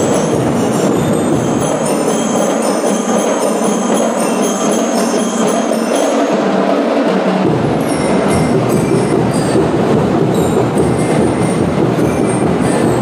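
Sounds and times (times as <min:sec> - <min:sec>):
bell lyres playing melody: 0:00.0 - 0:13.0
massed drumming: 0:00.0 - 0:13.0
heavy low drumming: 0:07.4 - 0:13.0.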